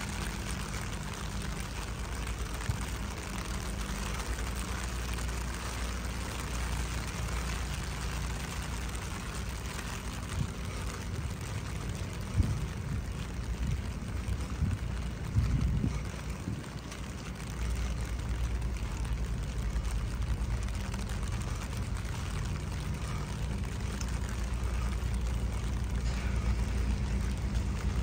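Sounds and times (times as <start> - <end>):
low rumble: 0.0 - 28.0
steady rain falling: 0.0 - 28.0.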